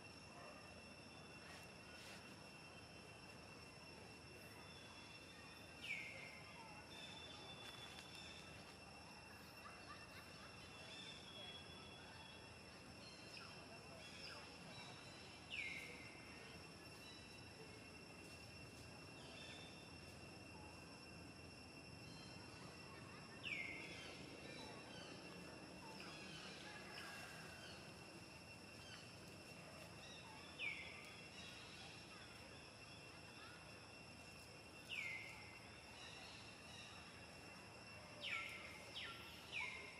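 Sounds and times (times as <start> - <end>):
high insect drone: 0.0 - 39.9.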